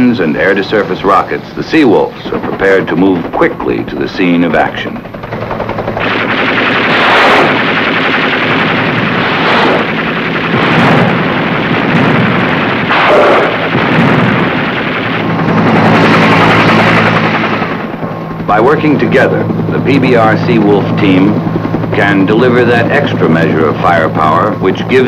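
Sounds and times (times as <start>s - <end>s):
helicopter low hum: 0.0s - 25.0s
machine-gun fire: 1.7s - 25.0s
rocket blasts: 5.9s - 21.3s.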